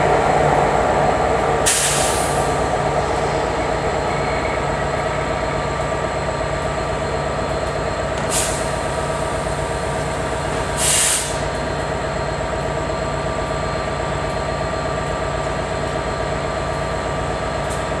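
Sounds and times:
diesel train idling hum: 0.0s - 18.0s
short air hisses: 1.6s - 2.5s, 8.3s - 8.7s, 10.8s - 11.4s.

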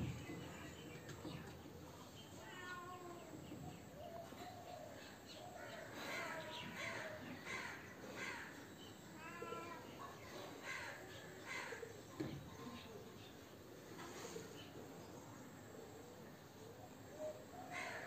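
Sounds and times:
crows cawing: 5.6s - 8.6s, 10.6s - 11.9s, 17.6s - 18.0s.

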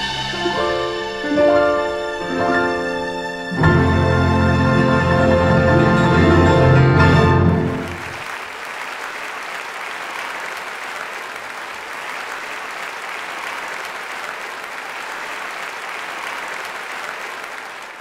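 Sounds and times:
people applauding: 7.4s - 18.0s.

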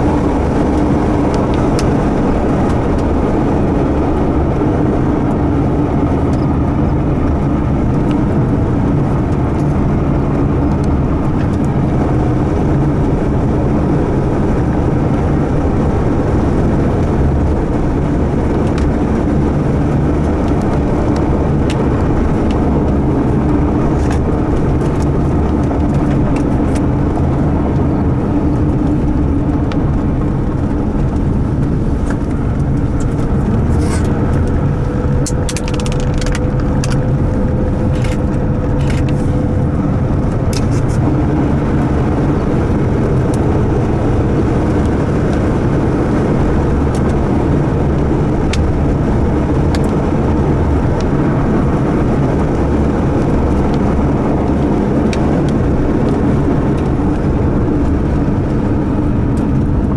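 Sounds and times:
car driving with road noise: 0.0s - 59.9s.

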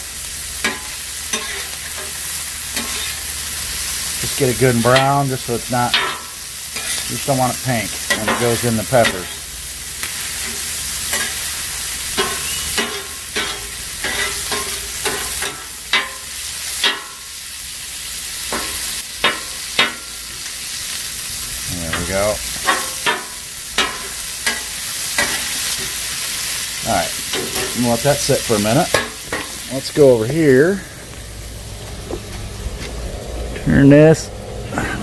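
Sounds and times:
sausage meat sizzling on griddle: 0.0s - 33.3s
metal spatula scraping griddle: 0.6s - 3.3s, 4.3s - 16.2s, 21.8s - 26.0s.

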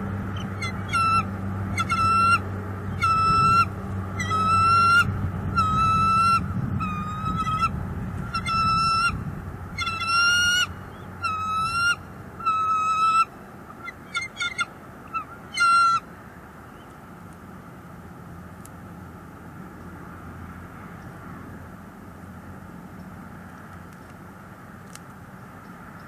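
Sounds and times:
bird calling: 0.3s - 17.0s.

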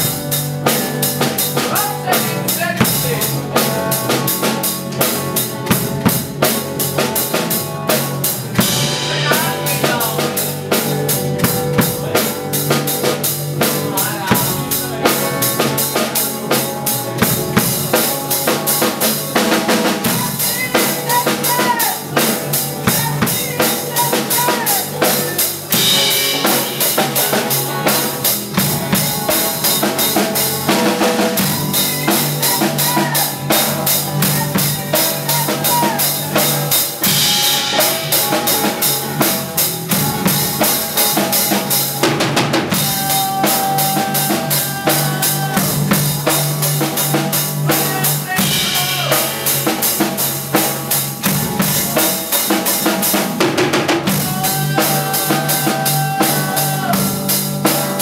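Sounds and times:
drum kit beat: 0.0s - 58.0s
electric guitar: 0.0s - 58.0s.

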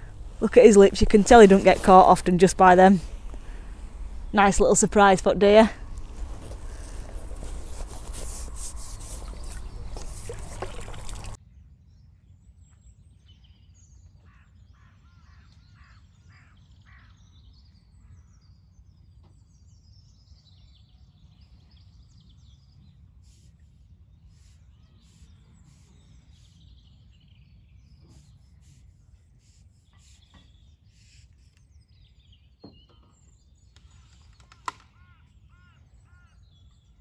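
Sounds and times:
birds chirping and calling: 2.4s - 11.4s
close rustling handling noise: 5.6s - 11.4s.

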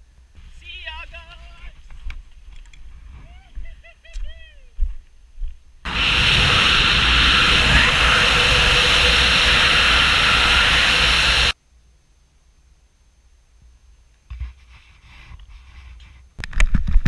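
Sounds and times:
wind rushing over microphone: 5.9s - 11.6s.

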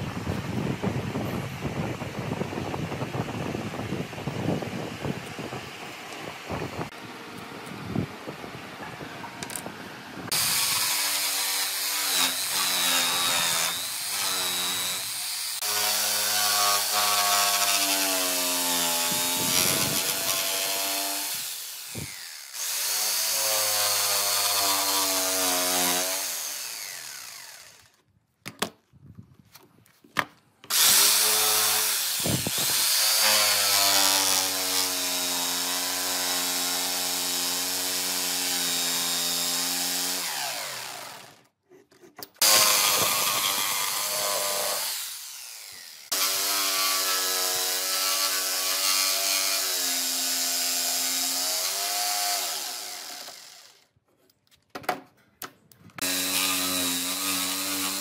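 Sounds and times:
electric jigsaw cutting wood: 10.3s - 28.0s, 30.7s - 41.5s, 42.4s - 53.9s, 56.0s - 58.0s.

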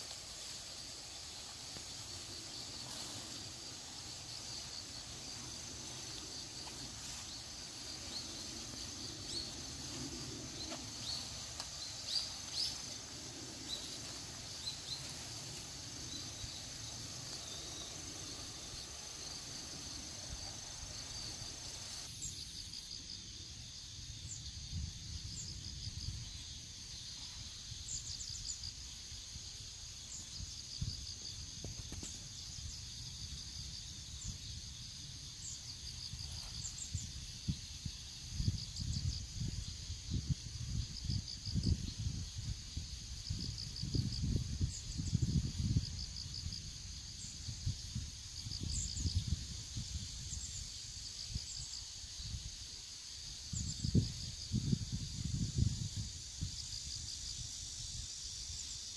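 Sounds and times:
insects trilling: 0.0s - 58.9s
wind on microphone: 36.8s - 50.5s, 53.5s - 56.6s.

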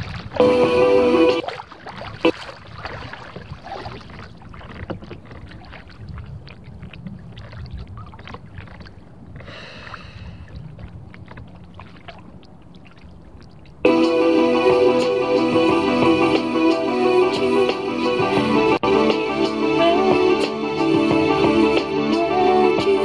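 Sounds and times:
paddle stroke splashes: 0.0s - 13.9s
water lapping against kayak hull: 0.0s - 13.9s.

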